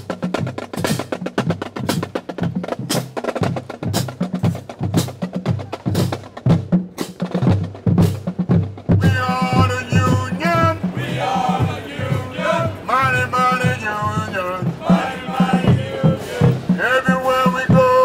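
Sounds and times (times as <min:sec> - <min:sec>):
pitched bass drums: 0:00.0 - 0:18.0
snare drum strokes: 0:00.0 - 0:18.0.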